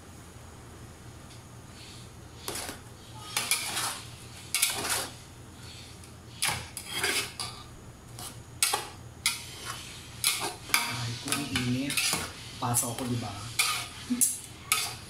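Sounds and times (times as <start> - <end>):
metal utensils scraping a pot: 2.4 - 7.6, 8.2 - 15.0.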